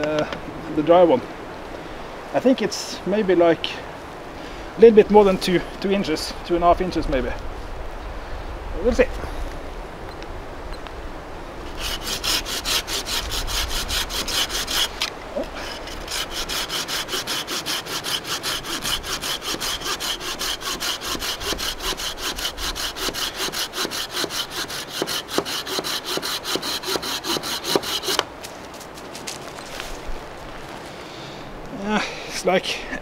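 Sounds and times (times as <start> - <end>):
saw cutting log: 11.6 - 28.3.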